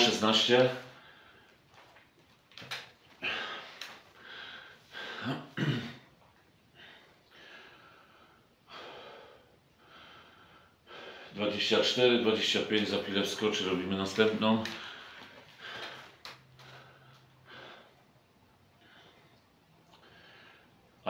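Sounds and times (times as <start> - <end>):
man breathing: 0.8 - 1.7, 3.1 - 5.6, 6.7 - 11.4, 14.7 - 21.0.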